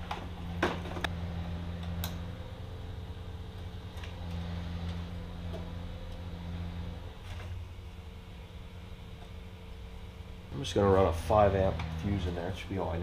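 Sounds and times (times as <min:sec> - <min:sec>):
steady low hum: 0:00.0 - 0:13.0
light clicks of wiring parts: 0:01.8 - 0:02.2.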